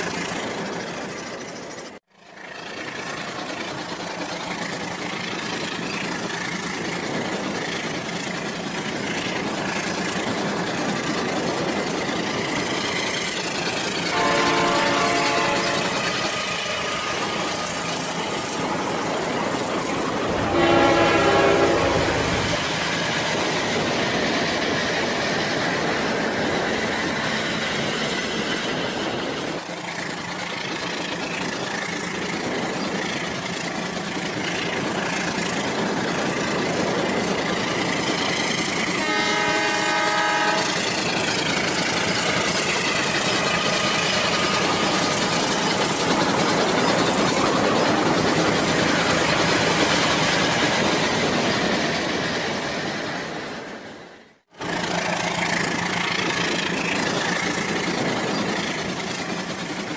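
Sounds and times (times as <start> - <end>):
toy train horn: 14.1 - 17.3, 20.4 - 22.3, 39.0 - 40.8.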